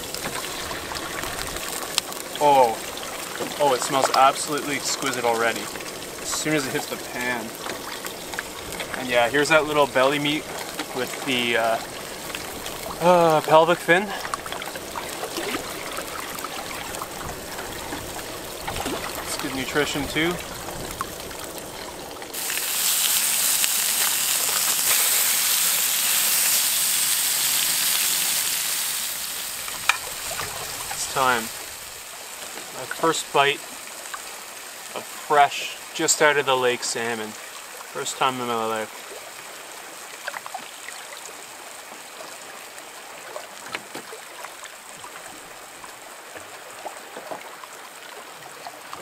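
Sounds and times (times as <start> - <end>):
fish sizzling in oil: 0.0 - 36.2
water lapping against rocks: 0.0 - 49.0.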